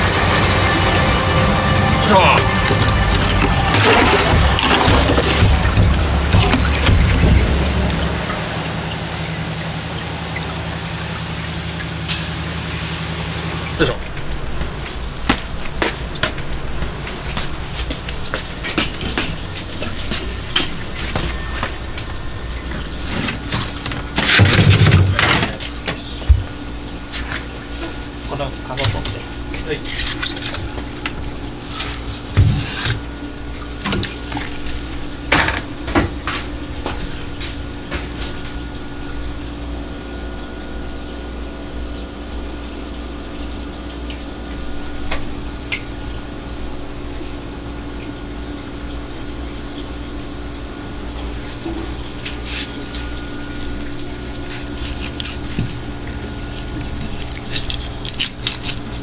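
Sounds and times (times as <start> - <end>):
low machine hum: 0.0 - 59.0
water running in steel sink: 0.0 - 59.0
plastic crate knocking: 3.4 - 8.0.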